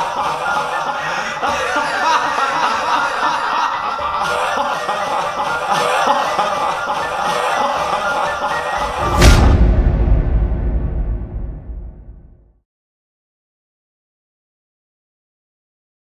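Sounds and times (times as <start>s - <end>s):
man laughing: 0.0s - 9.1s
background music: 0.0s - 12.4s.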